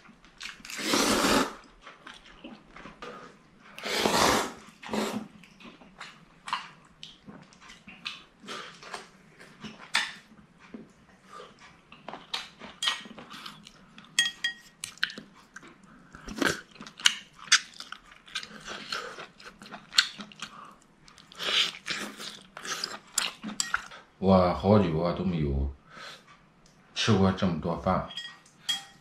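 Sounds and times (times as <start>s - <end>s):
wet chewing: 0.0s - 24.0s
person slurping noodles: 0.7s - 1.7s, 3.8s - 5.3s
chopsticks clinking on bowl: 12.6s - 13.2s, 14.1s - 15.2s, 23.5s - 23.9s, 28.1s - 29.0s.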